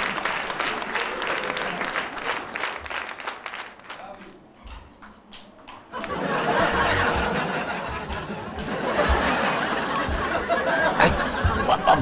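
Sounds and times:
audience laughing and cheering: 0.0s - 2.8s, 5.9s - 12.0s.

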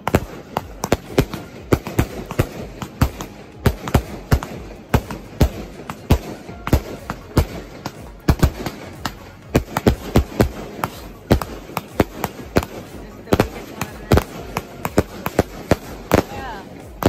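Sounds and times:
fireworks bangs and pops: 0.0s - 17.0s.

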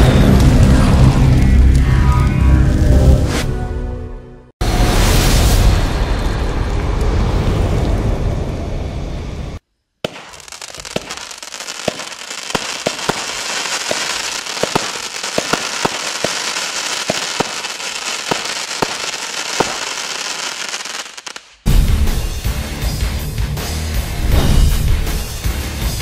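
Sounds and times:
low rumbling sound effect: 0.0s - 9.6s
crackling hiss: 10.0s - 21.6s
fireworks popping: 10.0s - 21.6s.

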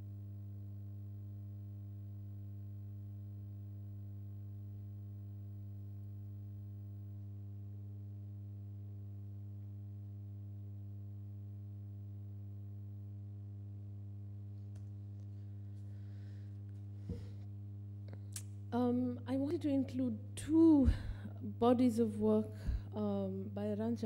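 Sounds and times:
electrical mains hum: 0.0s - 24.0s
short knock: 17.0s - 17.4s.

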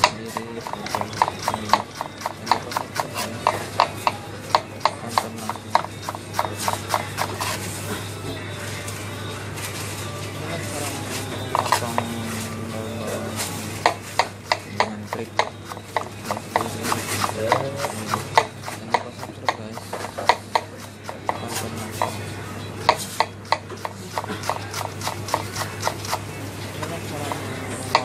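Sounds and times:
knife chopping on cutting board: 0.0s - 7.6s, 13.8s - 22.2s, 22.8s - 26.2s.

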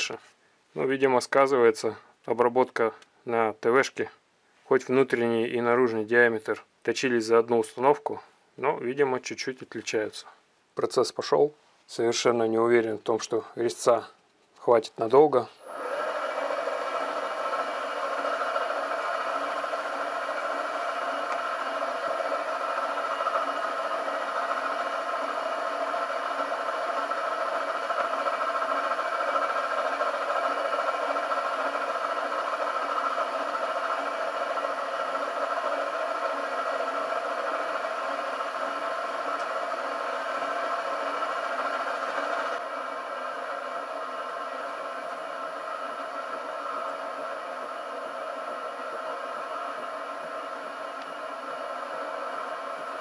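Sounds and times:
milling machine cutting steel: 15.8s - 53.0s.

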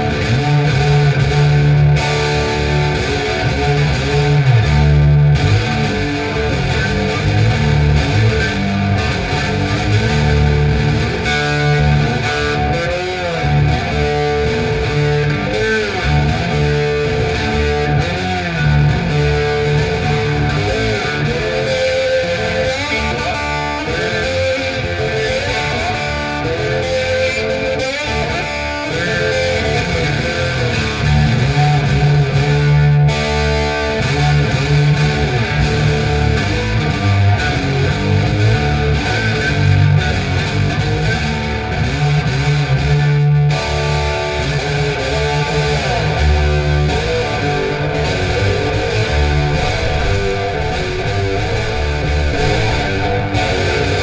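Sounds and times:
electric guitar instrumental: 0.0s - 54.0s.

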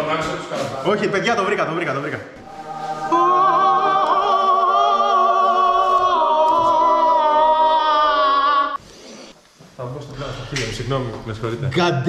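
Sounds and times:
choir singing held chord: 2.4s - 8.8s.

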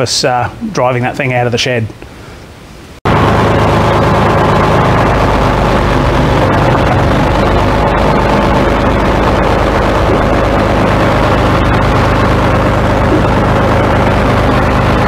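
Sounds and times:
tractor diesel engine running: 3.1s - 15.0s.

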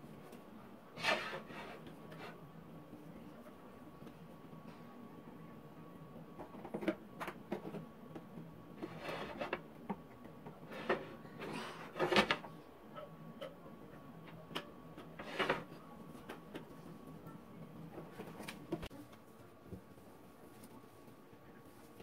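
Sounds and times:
faint steady hum: 0.0s - 22.0s
pastry sheet rubbing and rustling: 0.9s - 2.4s.

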